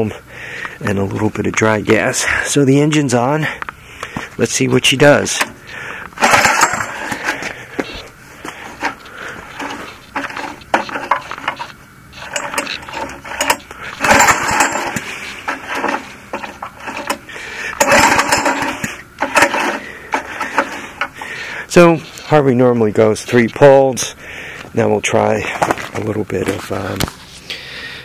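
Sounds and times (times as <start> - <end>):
generator engine cranking: 0.0 - 24.8
recoil starter rope whirring: 4.9 - 22.2.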